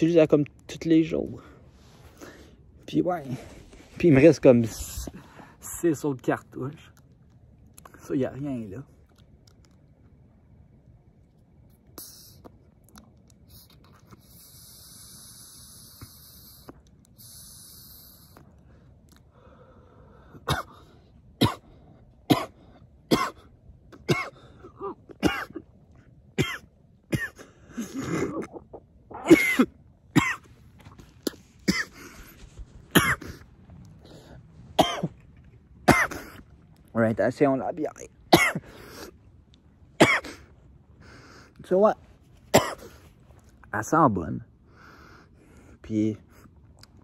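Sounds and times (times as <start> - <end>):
vape pen hiss: 12.0 - 12.5, 13.5 - 18.5
man coughing: 20.4 - 21.7, 22.3 - 25.7, 26.4 - 30.5, 31.6 - 32.1, 32.9 - 33.4, 34.8 - 35.2, 35.9 - 36.4, 38.3 - 38.7, 40.0 - 40.5, 42.5 - 43.0.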